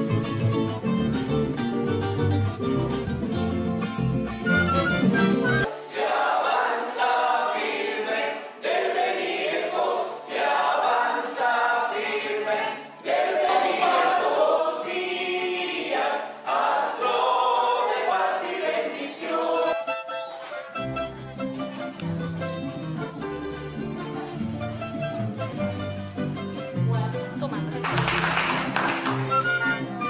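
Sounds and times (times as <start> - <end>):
group singing: 5.4 - 20.2.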